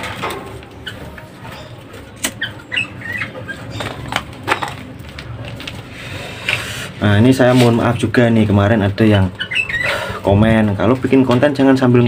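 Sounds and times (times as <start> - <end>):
handling noise: 0.0 - 6.7
songbirds chirping: 0.4 - 6.6, 7.2 - 12.0.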